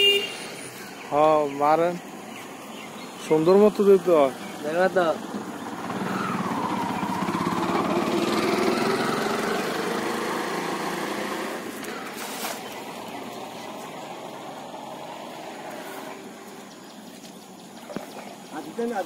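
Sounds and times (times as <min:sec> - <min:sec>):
small engine running: 0:05.6 - 0:12.3
net splashing into water: 0:11.8 - 0:12.9.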